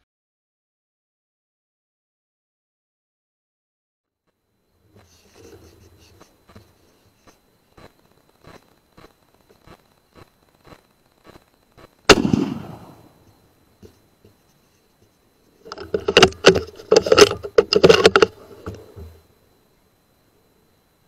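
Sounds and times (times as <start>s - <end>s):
rifle shot: 12.0s - 13.1s.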